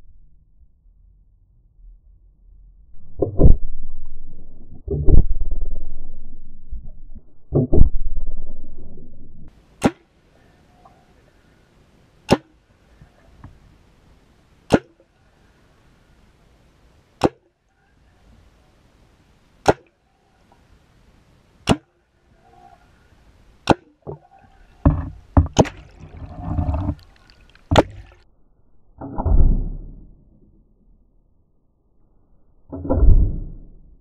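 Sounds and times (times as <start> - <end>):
splashing and bubbling: 24.0 - 28.2
underwater knocks: 24.8 - 28.2.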